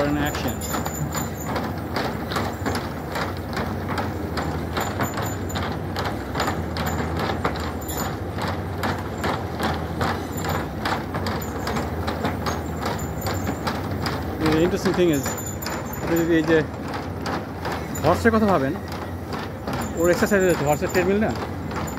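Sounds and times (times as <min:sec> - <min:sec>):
hooves clomping on wooden slats: 0:00.0 - 0:21.9
steady low hum: 0:00.0 - 0:21.9
treadmill clatter: 0:00.0 - 0:21.9.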